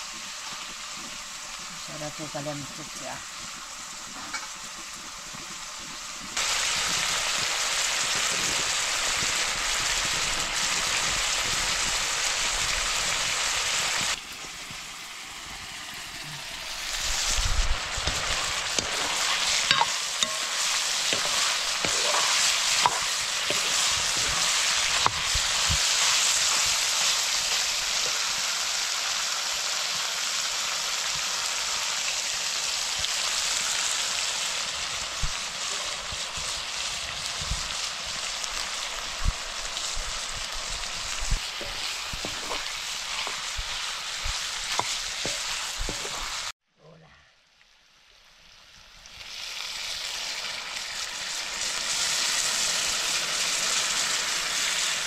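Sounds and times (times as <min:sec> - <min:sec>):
vegetables sizzling in hot oil: 0:00.0 - 0:46.6, 0:47.7 - 0:55.0
metal ladle scraping a pan: 0:18.0 - 0:27.1, 0:41.5 - 0:46.5.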